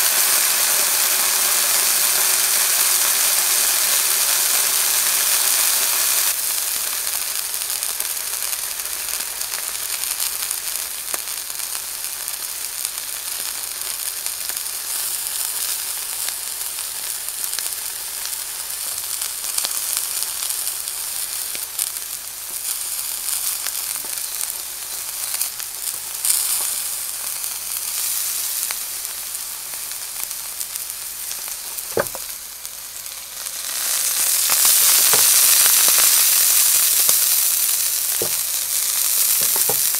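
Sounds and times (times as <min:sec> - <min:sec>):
steak sizzling in a frying pan: 0:00.0 - 0:39.9
fat popping: 0:31.3 - 0:32.8, 0:33.5 - 0:36.1, 0:37.0 - 0:39.9.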